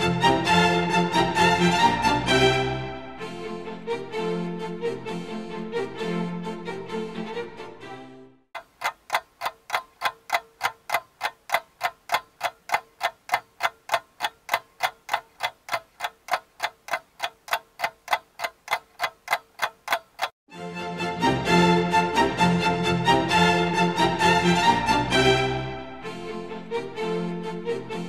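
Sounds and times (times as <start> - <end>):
background music: 0.0 - 8.4, 20.5 - 28.0
clock ticking: 8.6 - 20.4.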